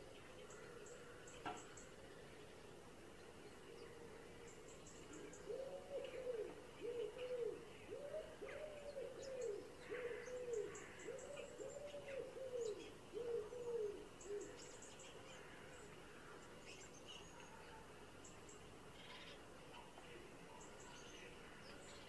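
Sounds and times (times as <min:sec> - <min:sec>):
small birds chirping: 0:00.0 - 0:22.0
bird cooing: 0:05.1 - 0:14.7.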